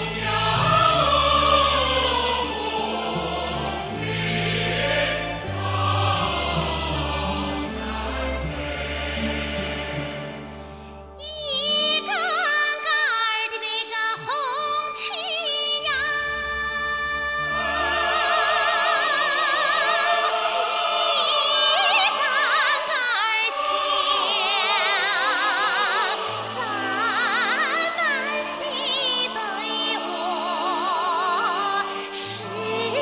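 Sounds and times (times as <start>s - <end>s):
instrumental accompaniment: 0.0s - 11.3s
woman singing with vibrato: 11.2s - 33.0s.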